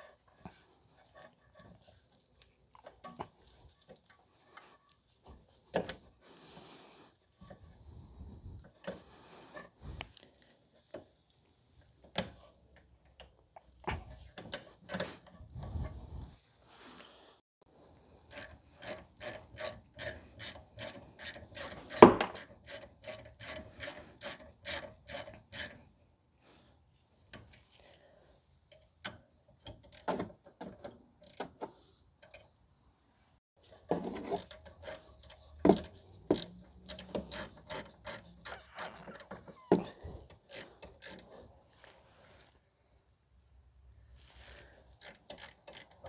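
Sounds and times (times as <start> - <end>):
ratchet wrench clicking: 40.3 - 41.3, 44.9 - 46.0.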